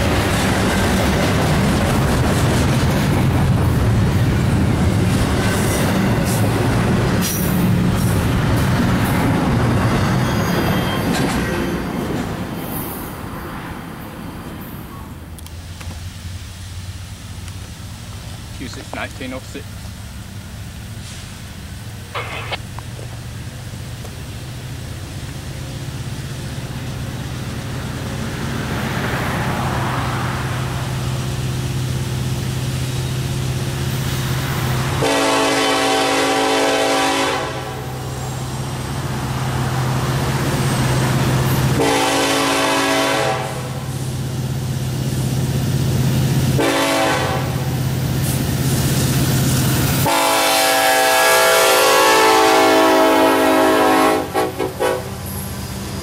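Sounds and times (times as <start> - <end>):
diesel engine drone: 15.2 - 35.2
locomotive air horn blasts: 35.0 - 38.0, 41.7 - 43.9, 46.6 - 47.7, 50.0 - 55.2.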